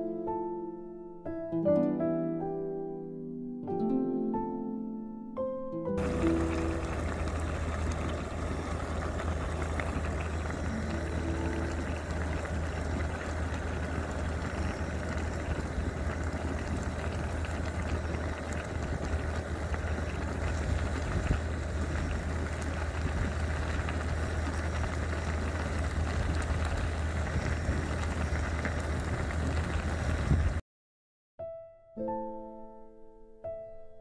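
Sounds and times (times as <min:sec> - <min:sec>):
broth boiling and bubbling: 0:06.0 - 0:30.6
gas stove rushing: 0:06.0 - 0:30.6.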